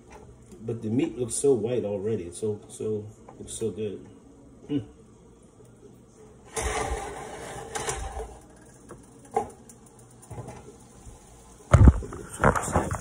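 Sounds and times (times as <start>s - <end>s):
scraping on stovetop: 6.5s - 9.5s.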